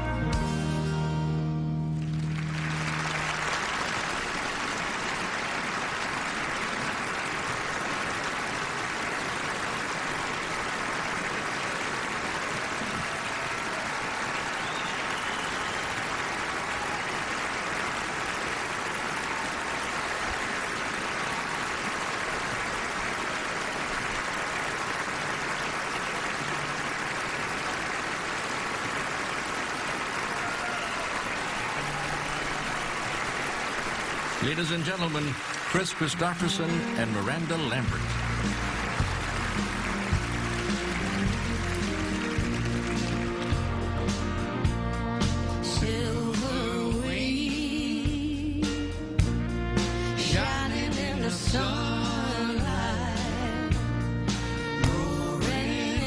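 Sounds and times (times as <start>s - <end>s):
large audience applauding: 1.9s - 44.4s.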